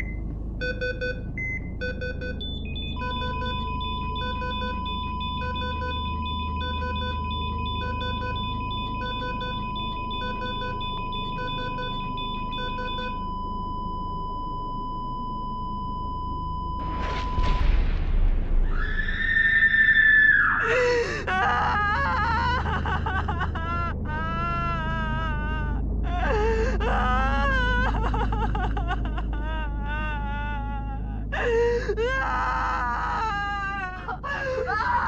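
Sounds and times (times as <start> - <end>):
low rumble: 0.0 - 34.7
high electronic tone: 1.8 - 13.9.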